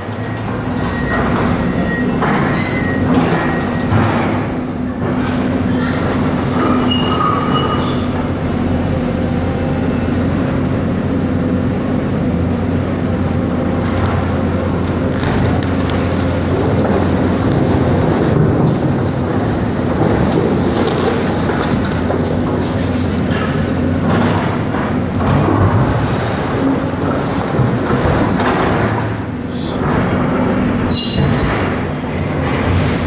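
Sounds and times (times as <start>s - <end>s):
excavator diesel engine running: 0.0s - 33.0s
high squeal: 0.8s - 3.8s, 30.8s - 31.2s
concrete crunching and cracking: 14.0s - 29.0s.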